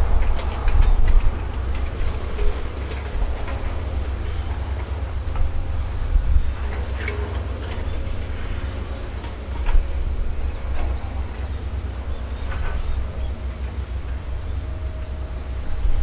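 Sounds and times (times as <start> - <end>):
excavator diesel engine running: 0.0 - 16.0
machine clanks and creaks: 0.0 - 16.0.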